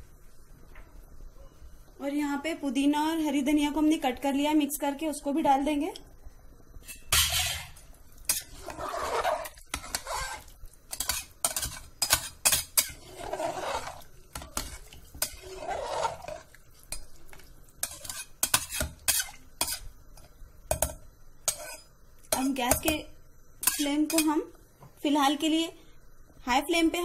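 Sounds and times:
water sloshing in a pot: 0:06.9 - 0:23.0
spoon clinking against a pot: 0:17.8 - 0:23.0.

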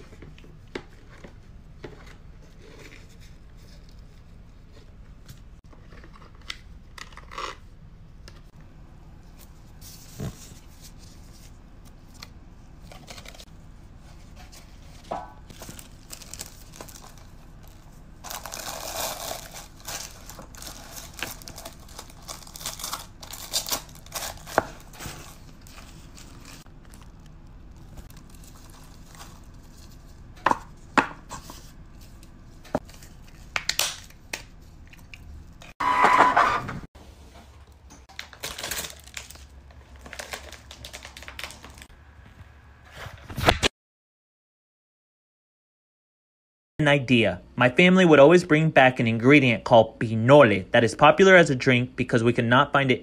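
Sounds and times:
paper crinkling and tearing: 0:15.5 - 0:30.1, 0:38.1 - 0:41.9.

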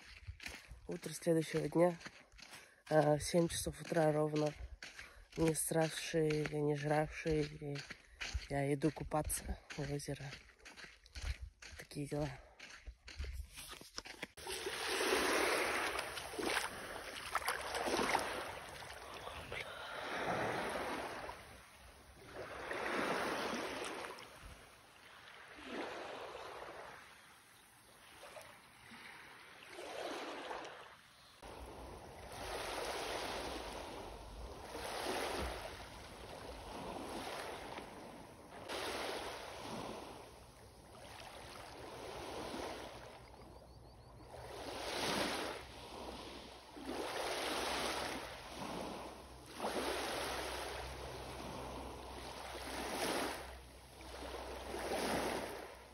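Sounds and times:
lake waves washing in: 0:14.4 - 0:43.3, 0:44.4 - 0:55.9.

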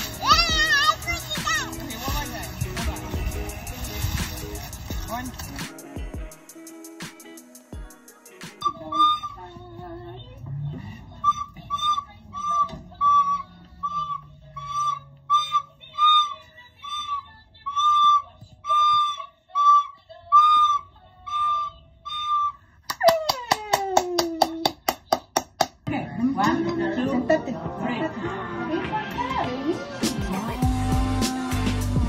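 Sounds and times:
whistle-like tune: 0:08.6 - 0:09.6, 0:11.2 - 0:22.6.

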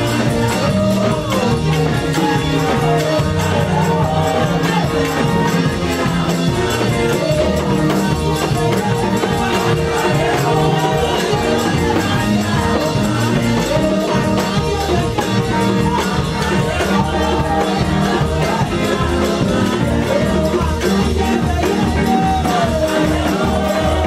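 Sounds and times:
band playing: 0:00.0 - 0:24.0
person singing: 0:00.0 - 0:24.0
steady percussion beat: 0:00.0 - 0:24.0.

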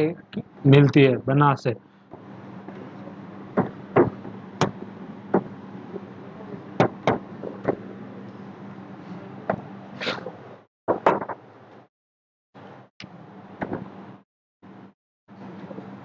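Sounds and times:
steady low hum: 0:00.0 - 0:10.7
duster knocking on board: 0:03.6 - 0:05.5, 0:10.9 - 0:11.4.

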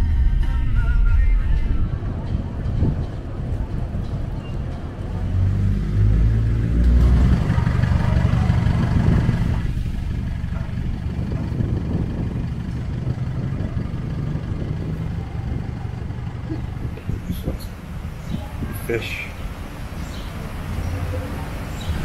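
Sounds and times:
engine running low rumble: 0:00.0 - 0:22.0.

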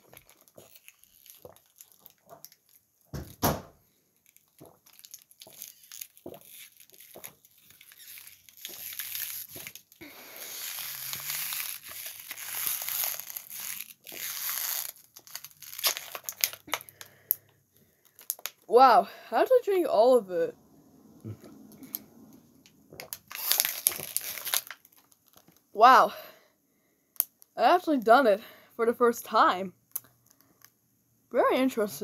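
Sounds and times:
plastic bottle crinkling: 0:00.0 - 0:03.3, 0:03.9 - 0:18.7, 0:22.9 - 0:25.7.

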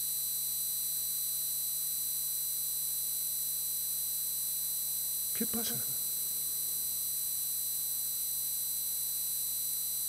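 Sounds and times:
electrical hum: 0:05.4 - 0:06.8.

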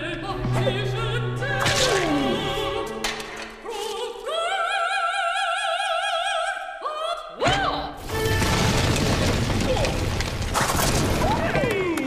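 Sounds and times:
loud crash: 0:08.0 - 0:11.5
rumbling din: 0:08.0 - 0:11.7.

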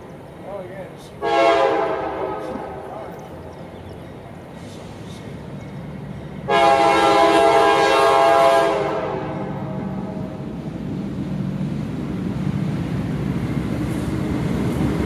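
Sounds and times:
train rumble: 0:00.0 - 0:15.0
locomotive air horn blast: 0:01.2 - 0:02.8, 0:06.5 - 0:10.4.

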